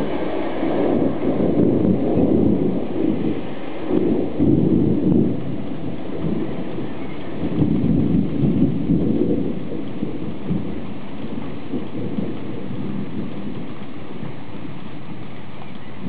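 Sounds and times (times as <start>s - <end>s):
steady rain: 0.0s - 16.0s
thunder rumbling: 0.0s - 16.0s.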